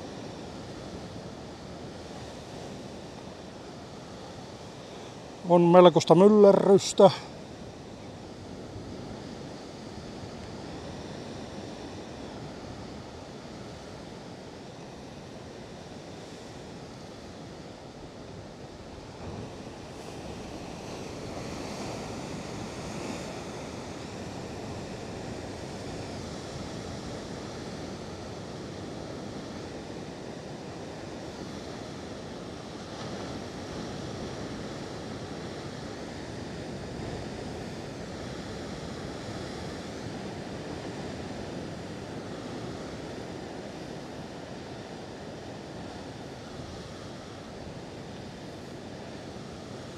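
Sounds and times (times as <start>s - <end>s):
ocean surf breaking: 4.6s - 7.3s.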